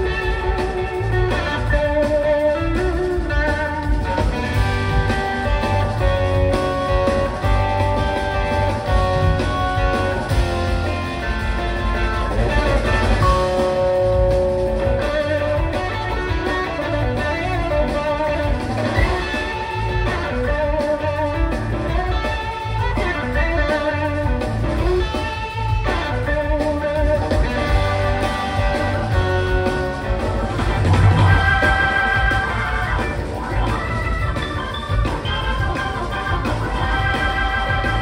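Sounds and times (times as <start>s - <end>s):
blues-rock band playing: 0.0s - 38.0s
electric guitar lead: 0.0s - 38.0s.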